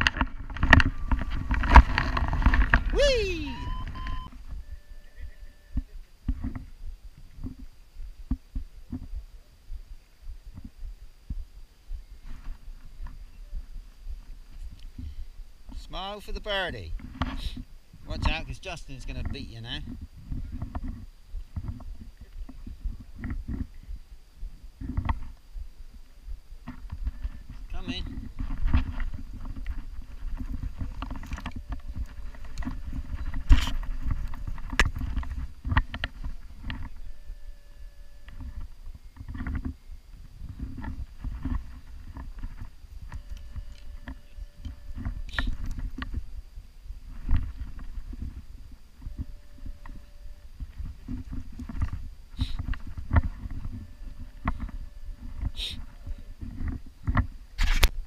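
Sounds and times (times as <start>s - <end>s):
wind buffeting microphone: 0.0s - 15.8s, 16.8s - 58.0s.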